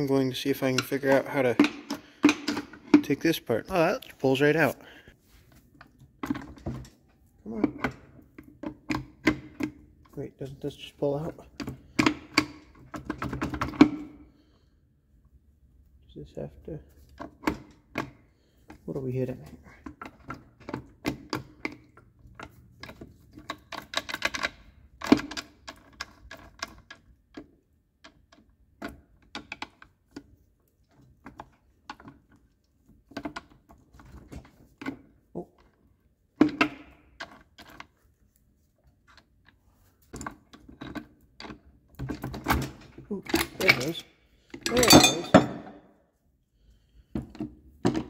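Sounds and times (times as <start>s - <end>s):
metallic clicks of steel parts: 42.6s - 45.8s.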